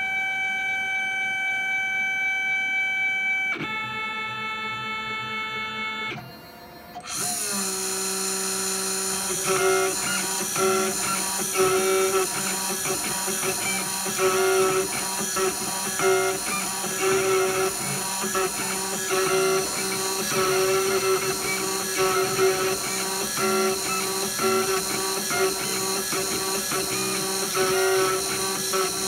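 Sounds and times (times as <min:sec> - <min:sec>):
stepper motors whining: 0:05.8 - 0:29.0
engraving machine humming: 0:06.2 - 0:29.0.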